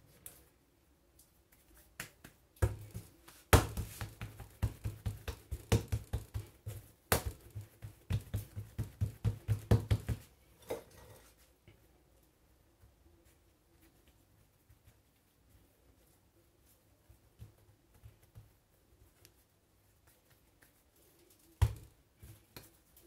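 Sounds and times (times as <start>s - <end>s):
hands patting dough on worktop: 1.2s - 10.5s, 16.7s - 23.0s
sharp slaps on dough: 1.9s - 10.2s.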